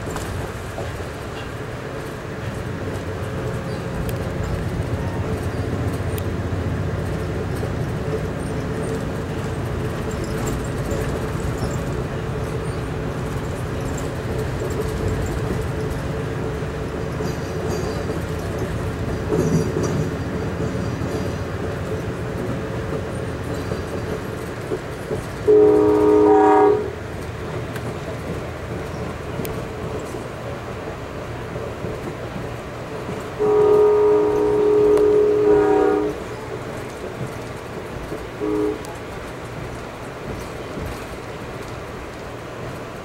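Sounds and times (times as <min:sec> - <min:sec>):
passing train: 0:00.0 - 0:43.0
train rumble inside coach: 0:00.0 - 0:43.0
locomotive horn blast: 0:25.4 - 0:27.0, 0:33.4 - 0:36.3, 0:38.4 - 0:39.0.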